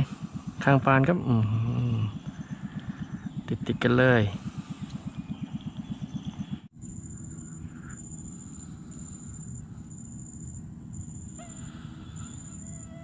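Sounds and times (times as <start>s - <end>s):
low rumble: 0.0s - 12.8s
fast low pulsing: 0.0s - 13.0s
insect high thin chirp: 6.8s - 13.0s
short pitched call: 11.2s - 13.0s.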